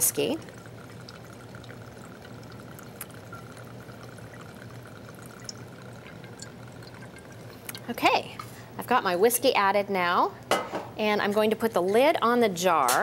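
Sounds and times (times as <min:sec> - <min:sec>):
liquid pouring into glass: 0:00.0 - 0:07.9.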